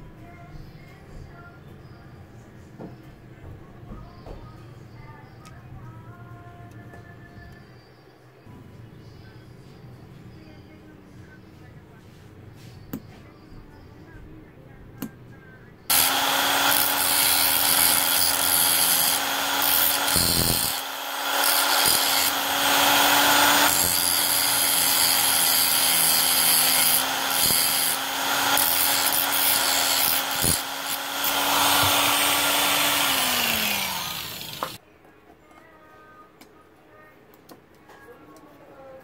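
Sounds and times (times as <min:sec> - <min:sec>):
angle grinder motor whine: 0:15.9 - 0:34.8.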